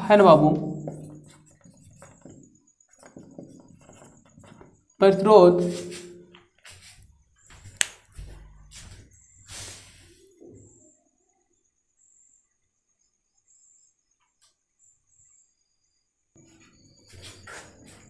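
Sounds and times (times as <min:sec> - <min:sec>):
faint knocks and rustles: 0:00.8 - 0:05.0, 0:06.0 - 0:09.5
faint high hiss-like tone: 0:08.8 - 0:10.6.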